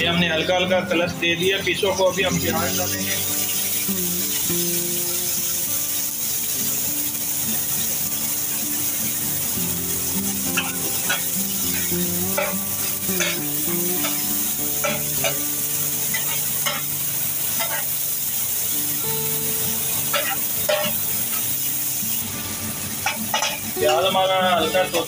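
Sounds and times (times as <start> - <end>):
onion sizzling in oil: 1.2 - 25.0
metal spatula scraping griddle: 10.6 - 13.4, 23.0 - 24.0.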